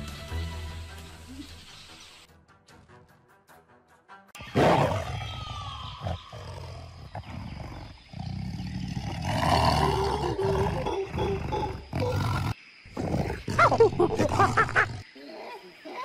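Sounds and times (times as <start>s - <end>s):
tiger growling and roaring: 4.5s - 15.0s.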